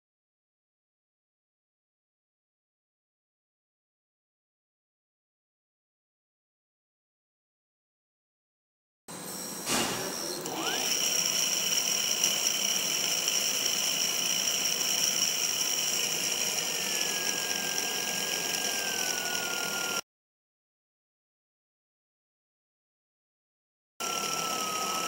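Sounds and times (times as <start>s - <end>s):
electric motor high-pitched whine: 9.1s - 20.0s, 24.0s - 25.0s.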